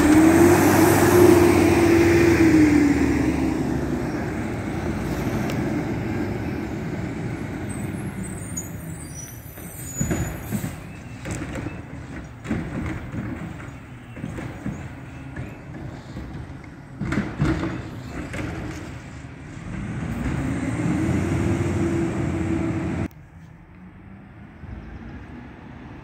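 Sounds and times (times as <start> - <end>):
garbage truck diesel engine: 0.0 - 23.2
short knocks and clunks: 9.6 - 19.0.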